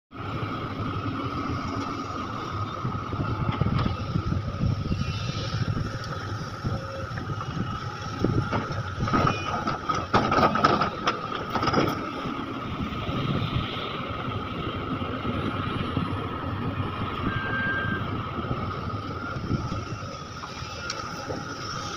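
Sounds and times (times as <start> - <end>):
excavator engine rumbling: 0.2 - 21.9
hydraulic whine: 15.8 - 21.9.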